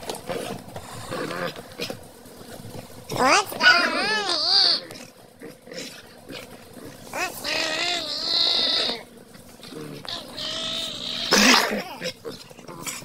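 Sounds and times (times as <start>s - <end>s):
dogs growl-whining: 0.0s - 13.0s
dog harsh burst: 10.4s - 12.0s.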